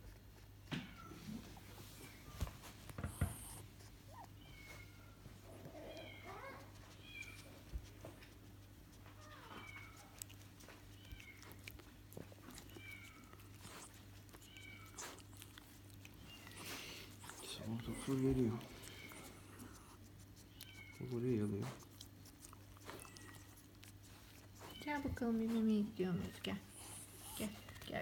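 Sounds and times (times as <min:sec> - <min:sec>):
puppies whimpering: 0:12.4 - 0:25.7, 0:26.3 - 0:28.0.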